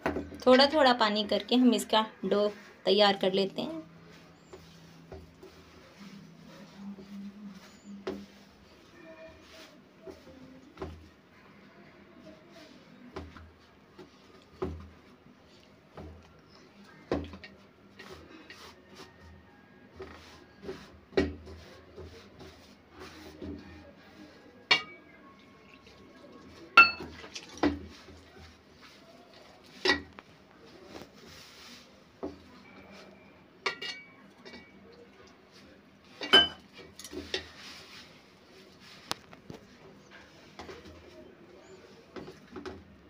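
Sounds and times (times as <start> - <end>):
dough rubbing and squishing: 0.0 - 43.0
metal bowl knocking and ringing: 26.8 - 27.1.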